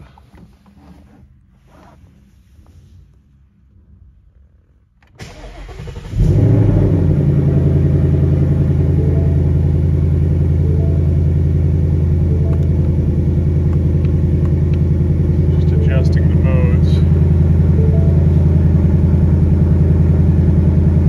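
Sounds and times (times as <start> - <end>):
engine starter cranking: 5.0 - 6.6
car engine revving and idling: 5.2 - 21.0.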